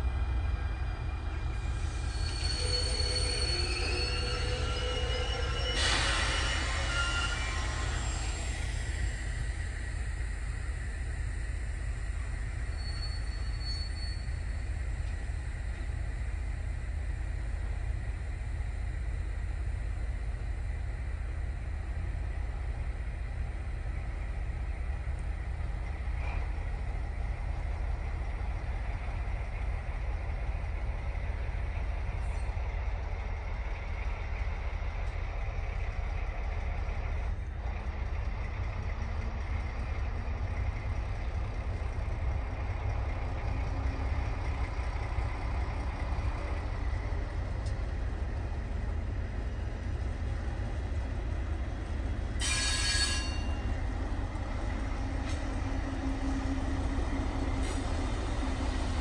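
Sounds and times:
locomotive rumbling: 0.0 - 59.0
wheels squealing: 1.8 - 8.5, 52.4 - 53.8.

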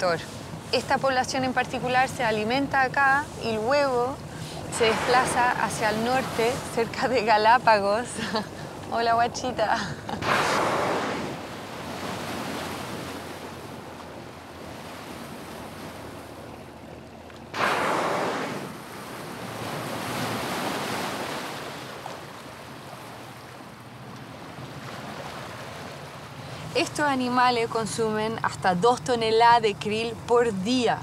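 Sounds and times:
sea and wind noise: 0.0 - 31.0
whale exhaling: 4.2 - 6.8.

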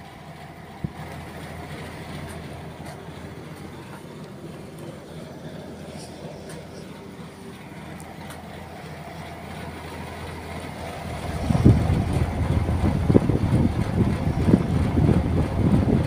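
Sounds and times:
fan air blast on microphone: 11.2 - 16.0.

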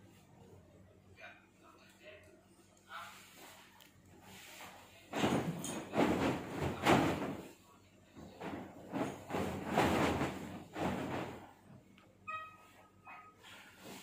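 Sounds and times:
bed sheet flapping and rustling: 4.3 - 7.5, 8.2 - 11.7.

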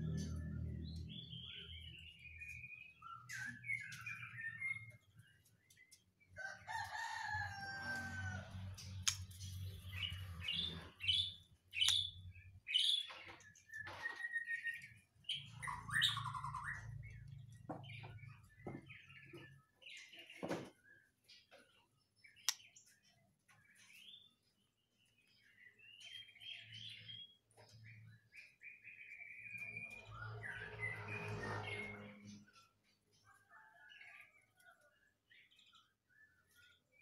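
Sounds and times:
low rumble: 0.0 - 1.9
bird singing whistles and trills: 11.1 - 17.0.

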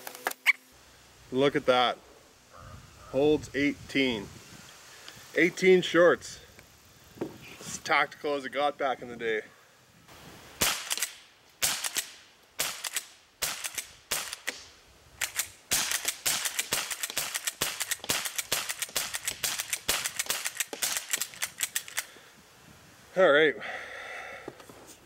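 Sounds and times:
rifle shots: 10.6 - 22.0.

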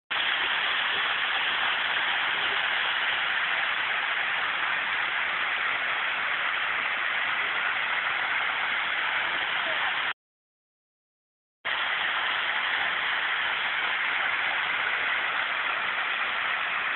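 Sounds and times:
waterfall rushing: 0.1 - 10.1, 11.7 - 16.9.

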